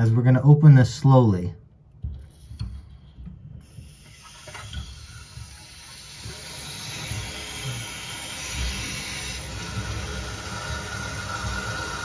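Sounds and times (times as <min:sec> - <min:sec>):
water hissing through valve: 0:03.6 - 0:12.0.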